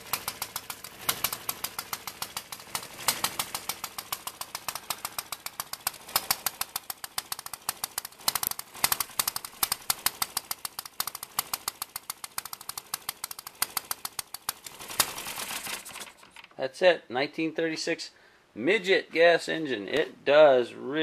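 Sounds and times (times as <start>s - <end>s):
model engine firing pops: 0.0s - 16.3s.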